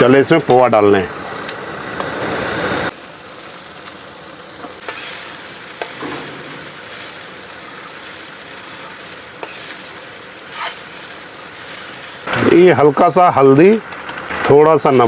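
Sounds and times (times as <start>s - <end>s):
food sizzling in hot oil: 0.0s - 14.4s.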